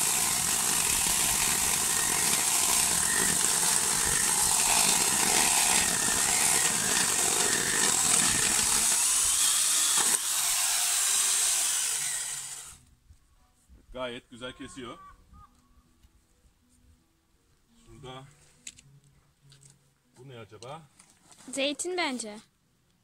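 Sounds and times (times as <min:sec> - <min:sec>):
grinder chainsaw cutting wood: 0:00.0 - 0:12.8.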